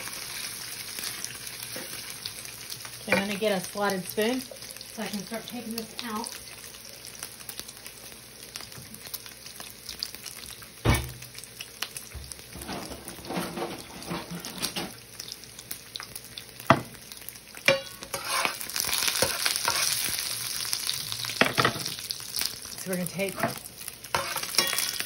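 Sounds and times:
bacon sizzling in frying pan: 0.0s - 25.0s
metal spoon scraping pan: 3.1s - 3.4s, 17.7s - 20.1s, 23.3s - 25.0s.

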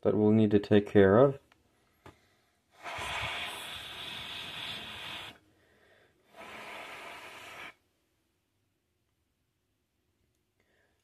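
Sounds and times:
long breathy hisses: 2.1s - 7.9s.

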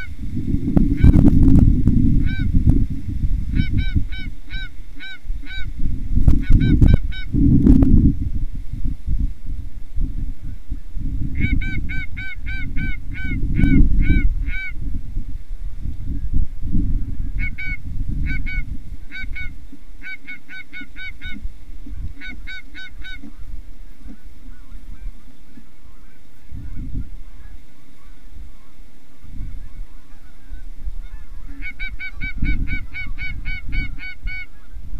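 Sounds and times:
goose honking: 2.2s - 2.5s, 3.6s - 5.7s, 11.4s - 14.8s, 17.4s - 21.4s, 22.1s - 23.5s, 29.6s - 34.8s.

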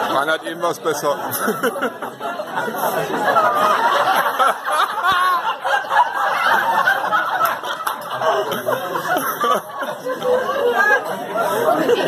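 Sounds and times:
people laughing: 0.0s - 12.0s
people talking: 0.0s - 12.0s.

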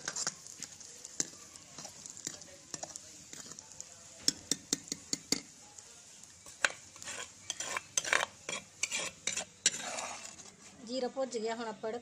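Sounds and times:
seeds sizzling and popping in oil: 0.0s - 11.4s
metal ladle scraping a pan: 6.4s - 10.8s.

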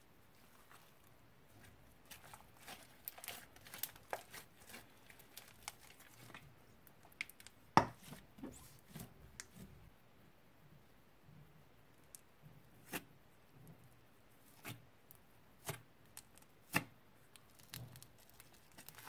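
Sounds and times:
sticky slime crackles and pops: 2.1s - 6.4s, 15.6s - 19.0s.

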